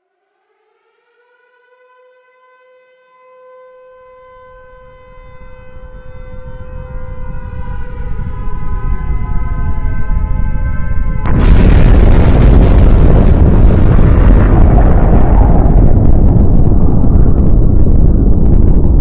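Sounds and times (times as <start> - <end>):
siren-like tone: 0.3 - 12.6
deep rumble: 4.8 - 19.0.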